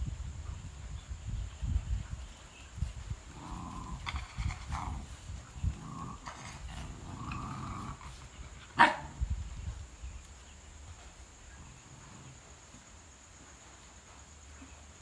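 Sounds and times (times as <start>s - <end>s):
dog barking: 8.8s - 9.2s.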